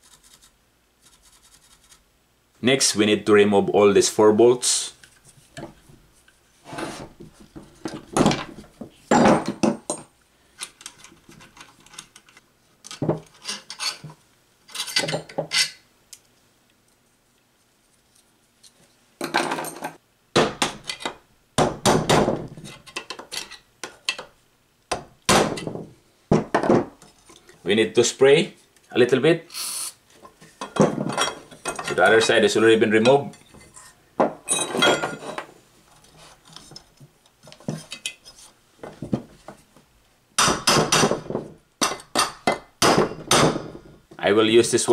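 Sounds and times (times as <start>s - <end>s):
metal tools clinking on wood: 10.7s - 14.1s, 14.7s - 15.8s, 30.6s - 32.0s, 33.0s - 35.5s.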